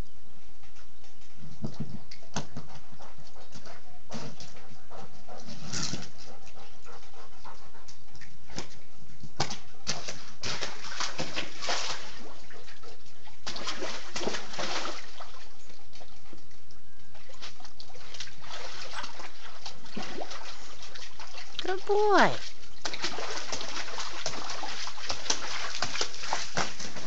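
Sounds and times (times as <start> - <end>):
dog splashing in puddle: 9.4 - 16.4, 17.1 - 27.0.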